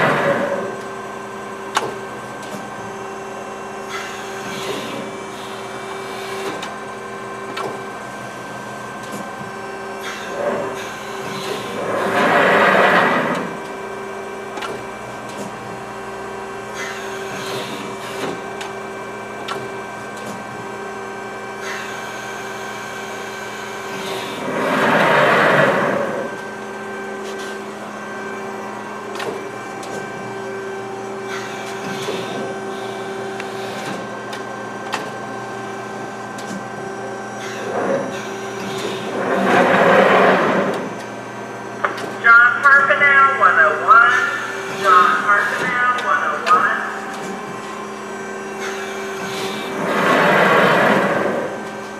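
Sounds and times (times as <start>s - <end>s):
hydraulic ram rushing: 0.0s - 0.8s, 10.0s - 13.9s, 23.8s - 27.6s, 37.4s - 42.0s, 48.4s - 51.9s
hydraulic pump humming: 0.0s - 51.9s.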